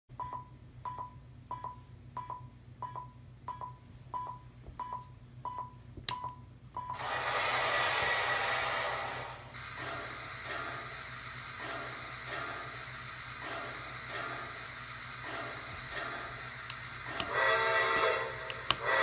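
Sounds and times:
simulated steam hiss: 7.2 - 19.0.

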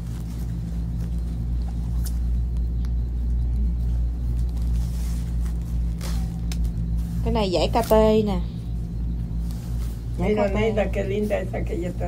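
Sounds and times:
fabric and plastic rustling: 0.0 - 12.0
low droning hum: 0.0 - 12.0.

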